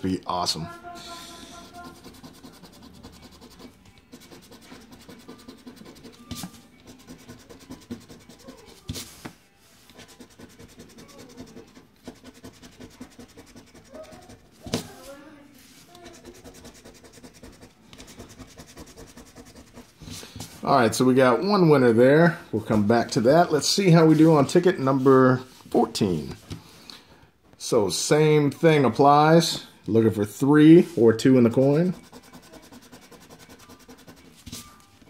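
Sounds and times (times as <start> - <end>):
coin scratching lottery ticket: 1.3 - 8.8, 9.9 - 14.6, 16.0 - 20.0, 31.4 - 34.6.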